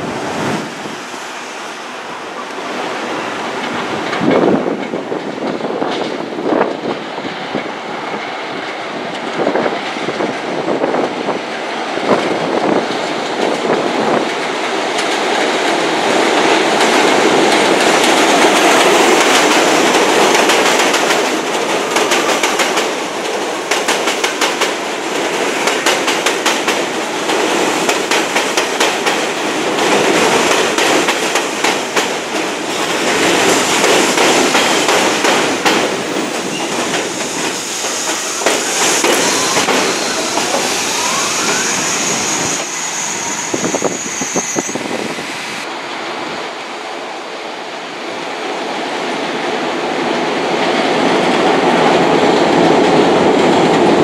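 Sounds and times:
subway train rumble: 0.0s - 54.0s
wheels clacking over rail joints: 2.4s - 41.7s.

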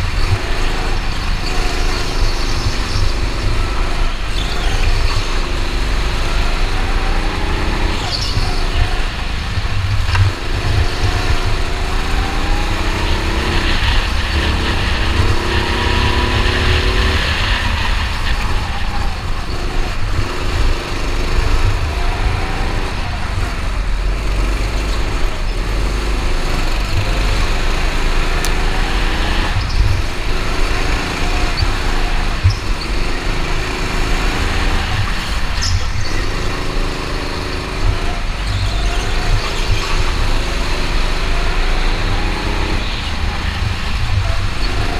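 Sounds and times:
go-kart motor: 0.0s - 44.9s.

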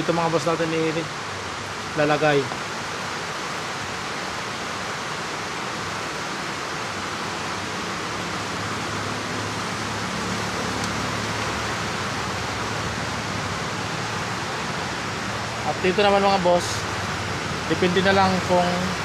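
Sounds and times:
steady rushing hiss: 0.0s - 19.0s.

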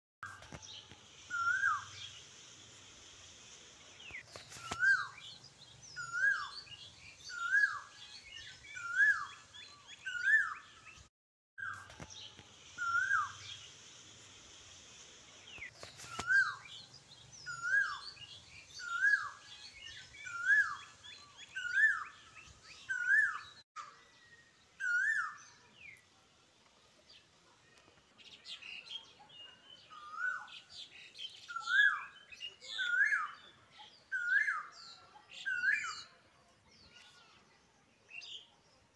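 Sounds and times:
bird chirping: 0.2s - 26.0s
small birds twittering: 0.2s - 38.9s.

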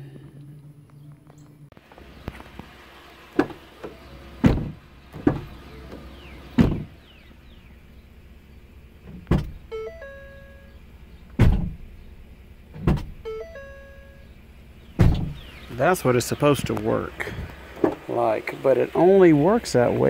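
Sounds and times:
car door clunks: 2.0s - 7.3s, 9.0s - 12.0s, 12.7s - 14.3s, 14.9s - 15.7s, 16.5s - 18.1s.

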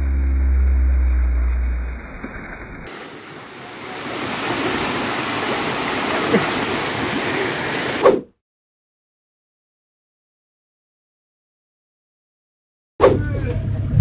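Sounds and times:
low droning hum: 0.0s - 3.5s, 13.2s - 14.0s
waterfall splashing into pool: 1.3s - 8.0s.

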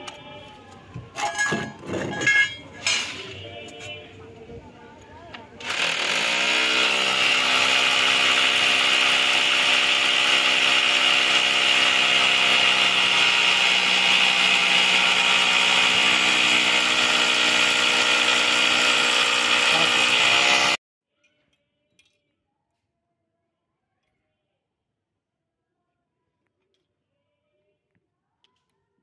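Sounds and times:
hammer drill whining: 5.6s - 20.8s.

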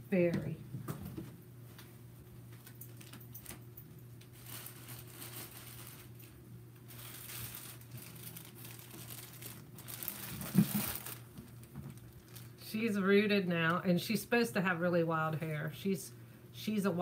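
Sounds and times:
wrapping crinkling: 2.5s - 12.7s.

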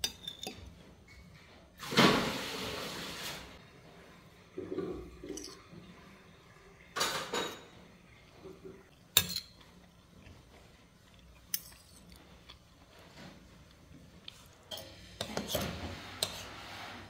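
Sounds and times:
cutlery scraping a plate: 9.2s - 9.7s, 14.7s - 17.0s.

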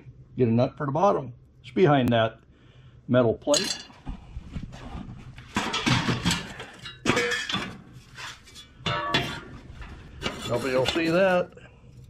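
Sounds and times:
metal stove parts clanking: 3.5s - 4.0s, 5.5s - 11.4s
ringing metal clattering hits: 8.8s - 9.4s.

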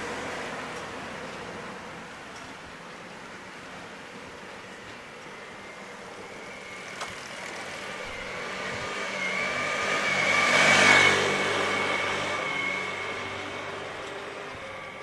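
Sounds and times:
vehicle approaching with whine: 3.8s - 15.0s.

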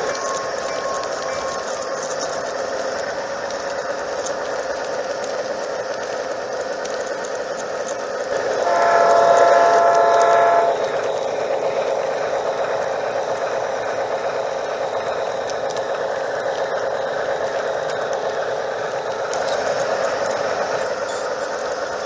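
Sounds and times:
model locomotive toot: 0.0s - 2.8s, 8.4s - 11.0s
model train wheels on rails: 0.0s - 22.0s.

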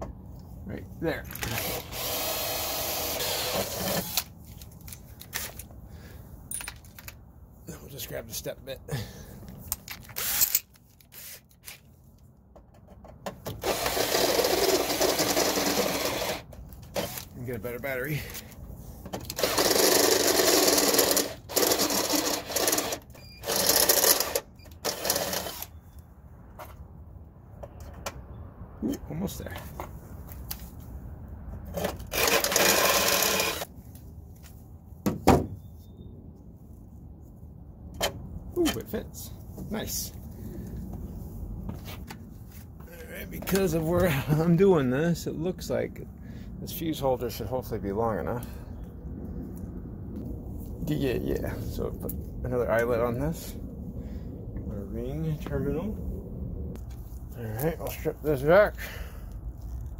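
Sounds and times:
cordless drill running: 1.5s - 4.3s, 13.6s - 17.2s, 19.4s - 25.7s, 32.1s - 33.7s.

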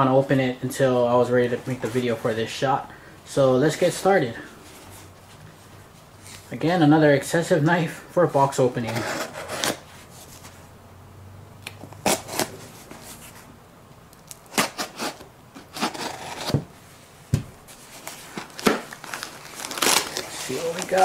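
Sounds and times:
knife cutting packing tape: 8.9s - 9.8s, 11.8s - 12.6s, 14.2s - 16.6s, 18.4s - 21.0s.

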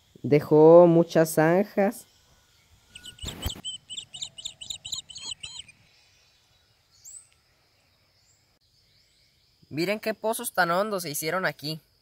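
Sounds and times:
bird chirping: 1.9s - 10.8s.

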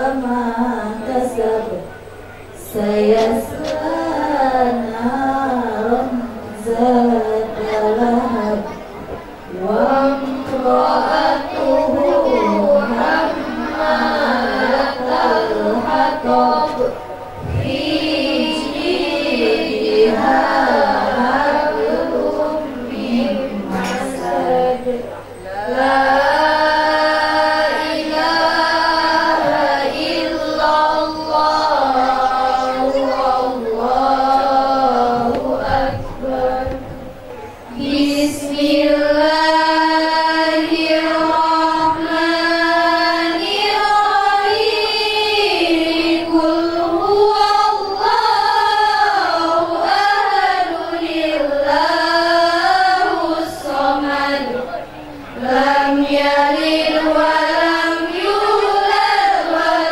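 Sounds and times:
woman chanting into microphone: 0.0s - 59.9s.

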